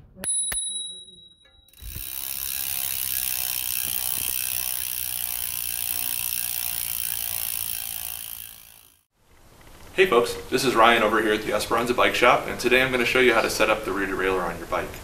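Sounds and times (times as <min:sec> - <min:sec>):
bicycle freewheel ratcheting: 0:01.7 - 0:09.1.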